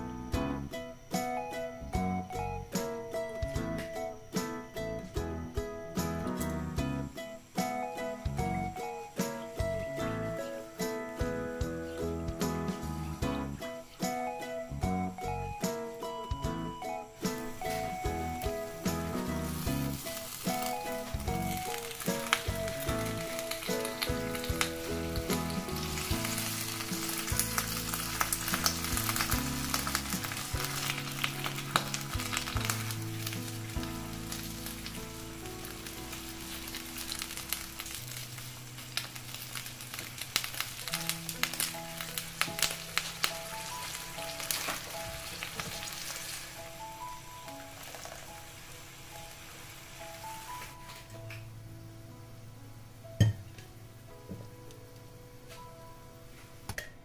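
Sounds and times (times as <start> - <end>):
soft background music: 0.0 - 57.0
water boiling in a pan: 17.2 - 51.2.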